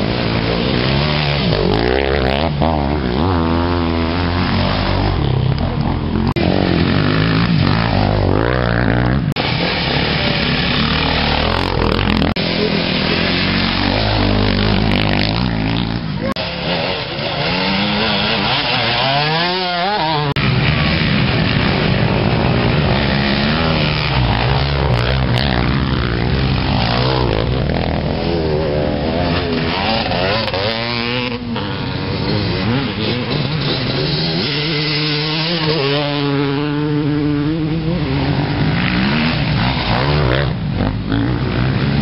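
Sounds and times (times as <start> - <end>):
dirt bike engines revving: 0.0 - 42.0.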